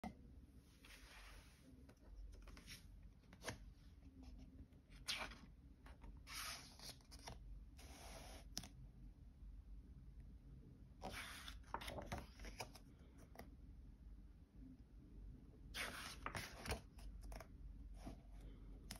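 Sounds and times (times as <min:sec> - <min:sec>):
book pages turning: 0:02.3 - 0:03.6, 0:05.0 - 0:07.4, 0:11.0 - 0:12.8, 0:15.8 - 0:17.4.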